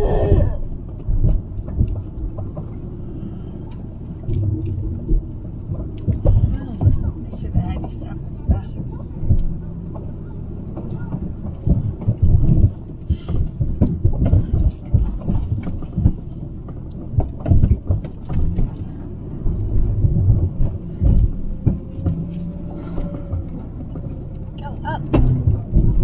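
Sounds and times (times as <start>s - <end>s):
vehicle knocks and thumps: 0.0s - 2.8s, 4.4s - 26.0s.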